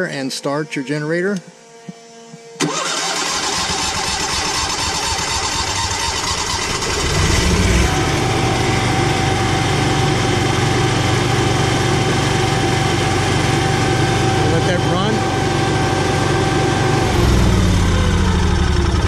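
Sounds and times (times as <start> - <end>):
generator starter cranking: 2.6 - 7.6
generator engine running: 2.6 - 19.0.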